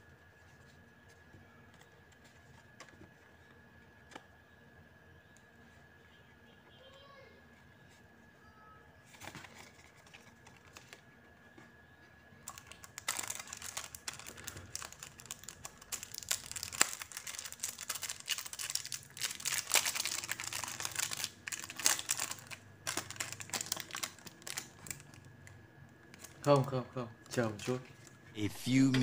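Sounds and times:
plastic packaging crinkling: 9.1s - 11.0s, 12.4s - 28.2s.

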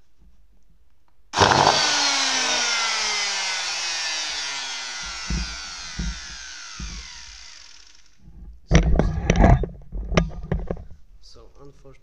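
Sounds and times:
circular saw motor whine: 1.4s - 8.2s
low knocks: 3.3s - 7.3s.

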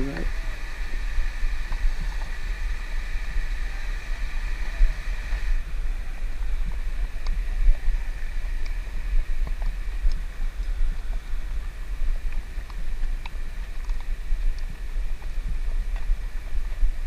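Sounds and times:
wind buffeting microphone: 0.0s - 17.0s
faint clicks: 12.2s - 15.3s.

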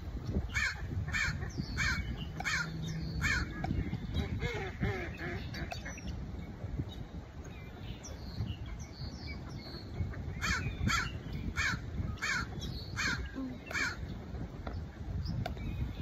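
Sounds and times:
wind rumble on microphone: 0.0s - 16.0s
bird calling: 0.5s - 6.2s, 7.6s - 14.2s.

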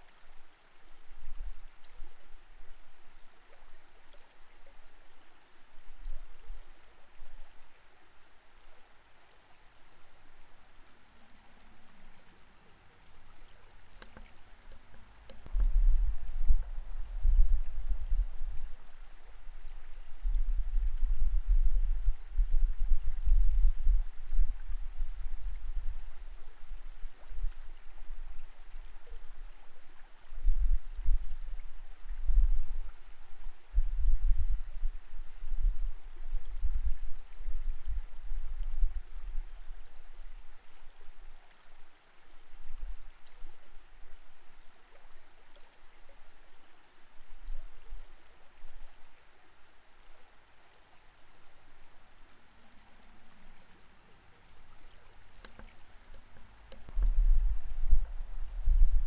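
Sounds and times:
faint steady hiss: 0.0s - 59.0s
muffled underwater water rumble: 0.0s - 59.0s.

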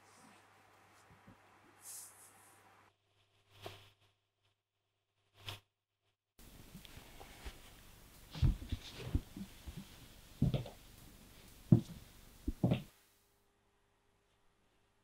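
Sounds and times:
faint hiss: 0.0s - 2.9s.

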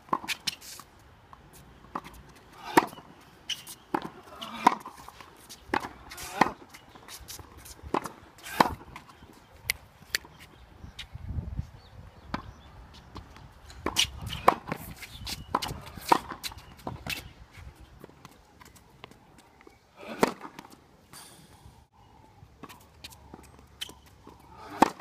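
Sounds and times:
tennis ball hits and bounces: 1.8s - 9.1s, 13.1s - 17.2s, 20.0s - 20.8s, 22.6s - 25.0s.

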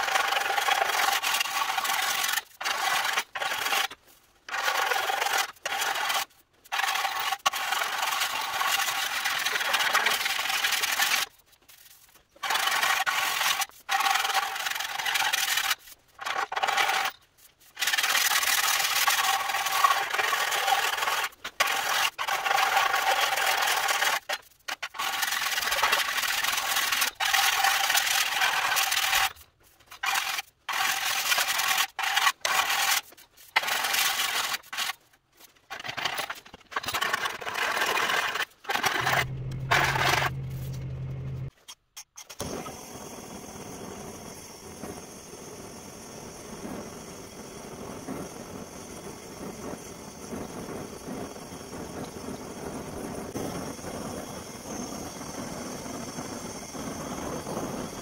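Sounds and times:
steady tool whine: 39.0s - 41.5s.

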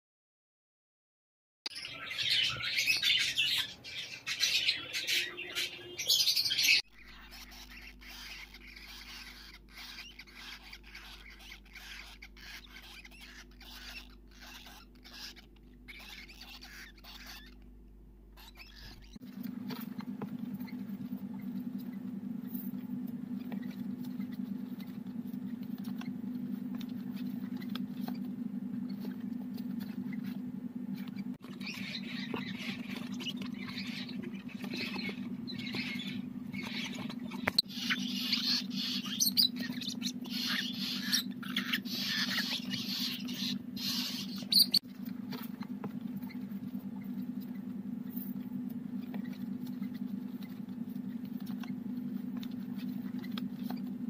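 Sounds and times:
bird chicks chattering and squeaking: 1.7s - 54.0s
steady low hum: 1.7s - 54.0s.

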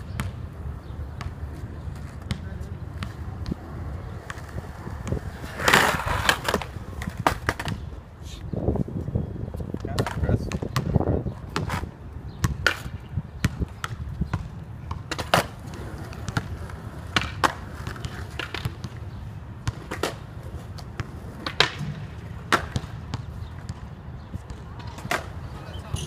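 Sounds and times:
skateboard wheels rolling on concrete: 0.0s - 26.0s
skateboard clacking on concrete: 1.2s - 7.9s, 9.7s - 10.7s, 15.0s - 19.1s, 19.7s - 22.9s, 24.7s - 26.0s.

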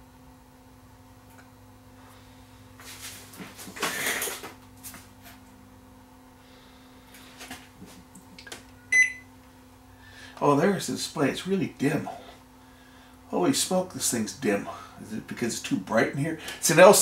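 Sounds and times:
low electrical hum: 0.0s - 17.0s
short high keypad beep: 8.9s - 9.2s.

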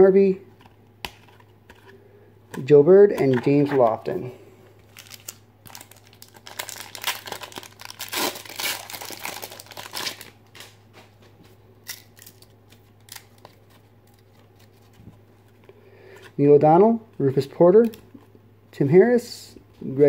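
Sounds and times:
foil wrapper crinkling and ripping: 4.8s - 10.8s.

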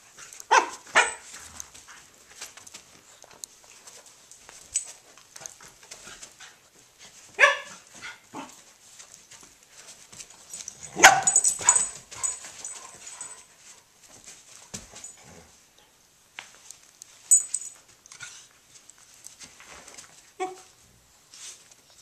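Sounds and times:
dogs scuffling: 0.0s - 15.5s, 16.4s - 22.0s
dogs barking and yipping: 0.3s - 1.4s, 7.4s - 8.6s, 10.7s - 13.4s.

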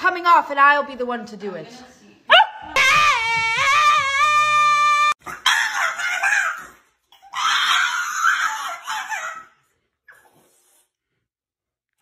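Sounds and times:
dog screaming: 2.3s - 9.6s.

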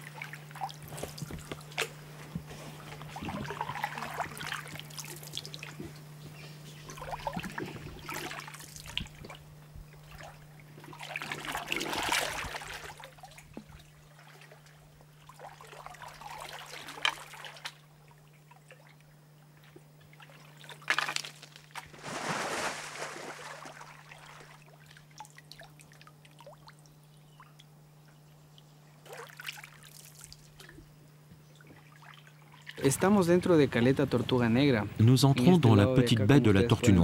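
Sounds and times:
paddle splashing through water: 21.9s - 24.6s.

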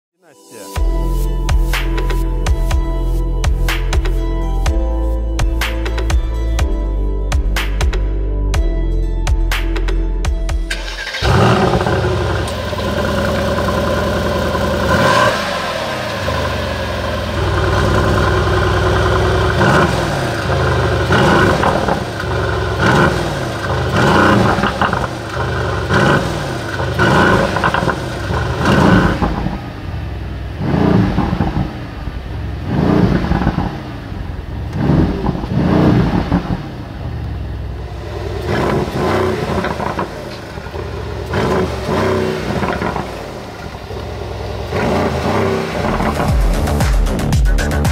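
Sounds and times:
car engine revving: 10.7s - 47.9s.

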